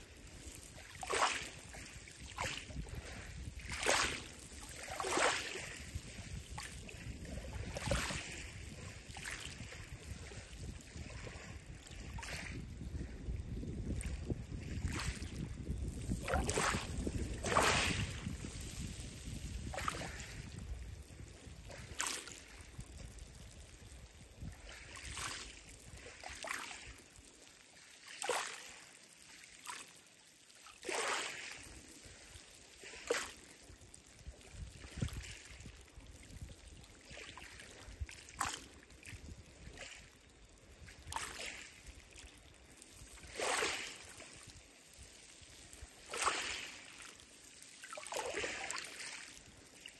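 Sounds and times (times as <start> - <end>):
wind rumble on microphone: 0.0 - 27.0, 33.9 - 42.3
waves lapping over pebbles: 0.0 - 49.9.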